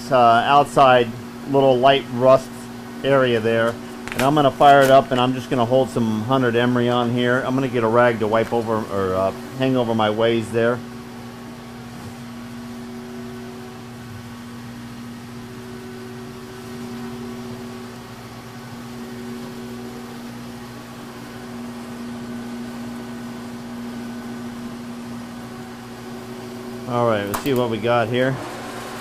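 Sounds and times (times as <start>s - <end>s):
faint machinery whir: 0.0s - 29.0s
steady electrical hum: 0.0s - 29.0s.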